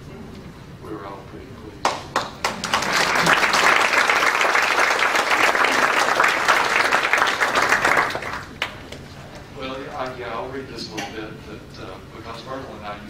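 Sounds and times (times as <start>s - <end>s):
audience applauding: 1.8s - 9.0s.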